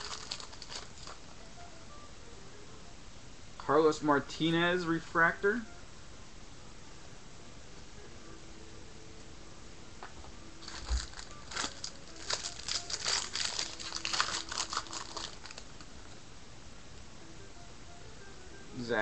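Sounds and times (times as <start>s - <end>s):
foil wrapper crinkling: 0.0s - 1.3s, 10.6s - 15.9s.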